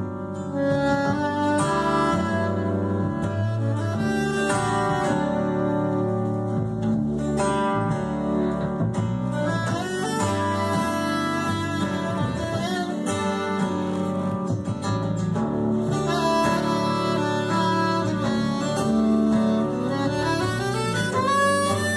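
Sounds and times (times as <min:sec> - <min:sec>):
strummed acoustic guitar: 0:00.0 - 0:21.9
upright bass: 0:00.0 - 0:21.9
soprano saxophone: 0:00.4 - 0:06.4, 0:15.9 - 0:21.9.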